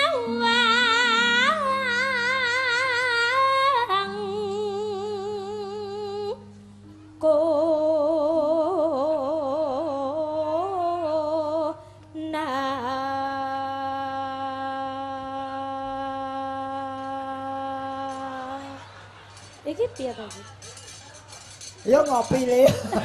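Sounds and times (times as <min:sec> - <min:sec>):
woman singing with vibrato: 0:00.0 - 0:19.0.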